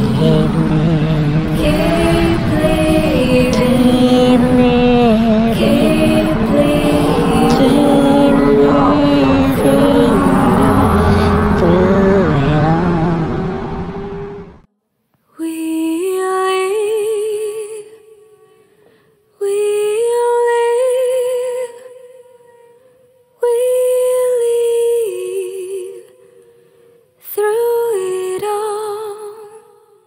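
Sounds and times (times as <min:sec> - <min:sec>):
wordless sung melody: 0:00.0 - 0:14.7.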